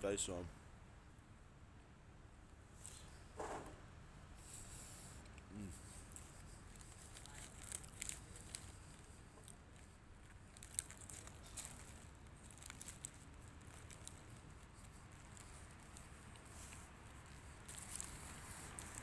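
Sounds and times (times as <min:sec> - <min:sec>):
pastry crackling and crinkling: 0:05.6 - 0:19.0.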